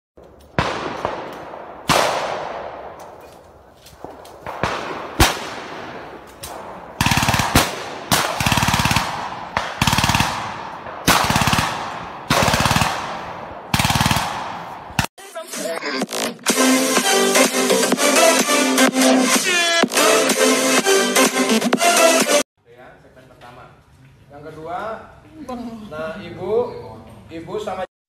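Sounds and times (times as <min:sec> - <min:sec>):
gunshots with echo: 0:00.5 - 0:03.3, 0:04.0 - 0:15.1
automatic gunfire bursts: 0:07.0 - 0:14.6.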